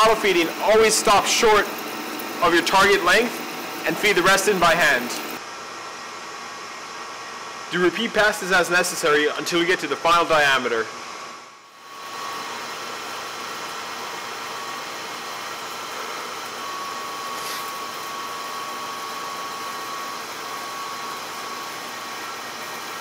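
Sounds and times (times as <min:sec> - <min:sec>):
metal lathe cutting metal bar: 0:00.0 - 0:05.4
thin high whine: 0:00.0 - 0:05.4.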